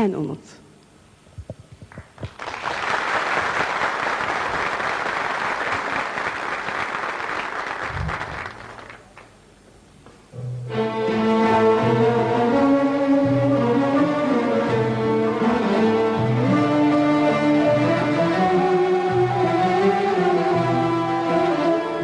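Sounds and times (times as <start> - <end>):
audience applauding: 1.9 - 9.4
orchestra with bowed strings: 10.6 - 22.0.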